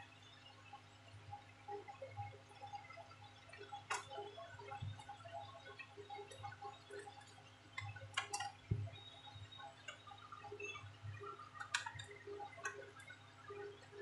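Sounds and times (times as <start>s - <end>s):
plastic clicks and taps: 7.8s - 8.9s, 11.6s - 12.8s.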